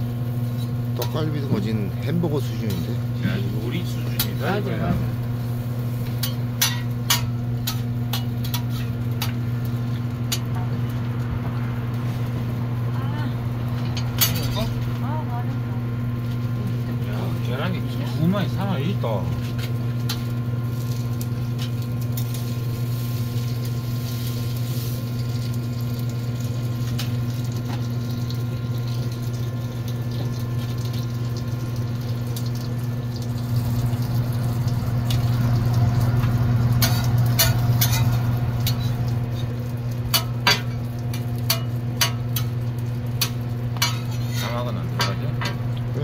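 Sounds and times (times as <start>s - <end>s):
food sizzling on griddle: 0.0s - 46.0s
low hum: 30.8s - 44.4s.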